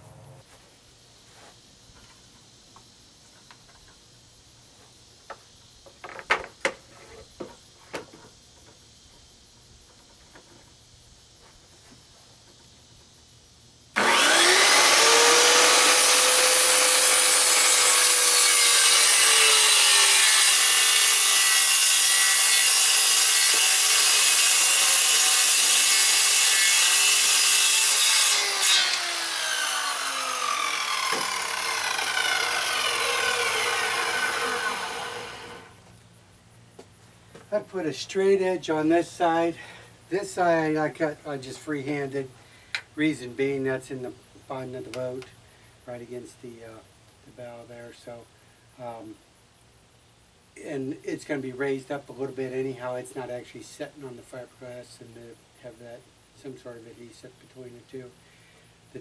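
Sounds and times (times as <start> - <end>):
circular saw cutting plywood: 14.0 - 35.8.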